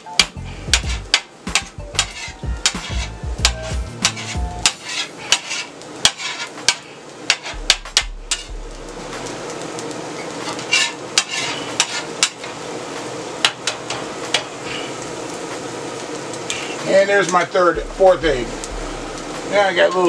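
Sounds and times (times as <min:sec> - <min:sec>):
eggs sizzling on a griddle: 0:00.0 - 0:20.0
metal spatula scraping steel: 0:00.7 - 0:07.6, 0:10.5 - 0:12.4.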